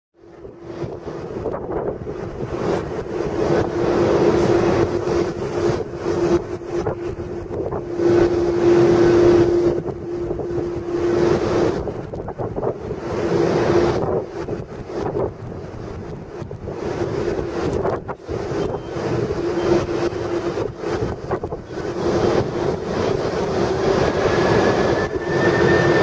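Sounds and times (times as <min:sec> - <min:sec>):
jet airliner engines: 0:00.2 - 0:26.0
wind buffeting microphone: 0:00.2 - 0:26.0.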